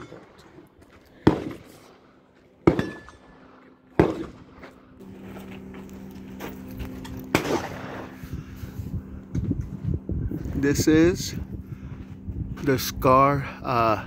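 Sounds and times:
steady low hum: 0.0s - 14.0s
rifle gunshots: 1.2s - 2.0s, 2.6s - 4.6s, 7.3s - 8.2s.

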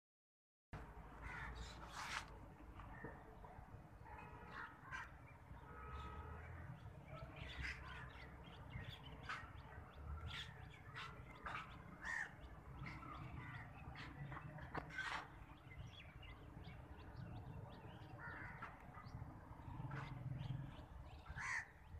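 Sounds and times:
birds calling: 4.4s - 21.9s.

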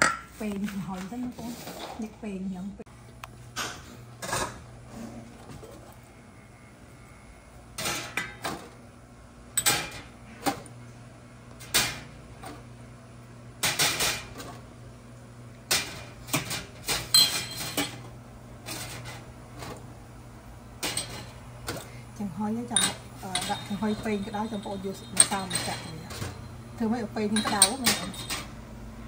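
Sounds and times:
utensils clinking against dishes: 9.6s - 10.6s, 15.7s - 18.1s, 20.8s - 21.9s, 22.6s - 28.6s.

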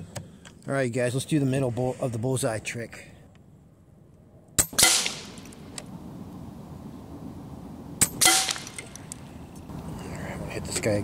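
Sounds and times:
air rifle shots: 4.6s - 5.6s, 8.0s - 9.2s.

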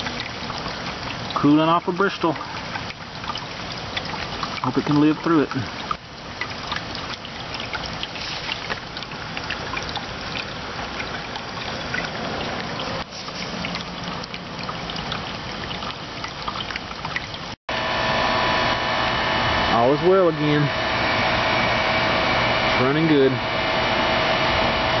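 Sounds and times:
water splashing on metal: 0.0s - 17.6s
heat pump unit humming: 17.7s - 25.0s.

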